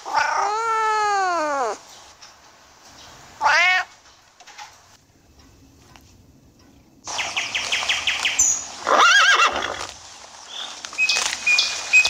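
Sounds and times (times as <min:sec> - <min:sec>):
horse whinnying: 0:08.8 - 0:09.9.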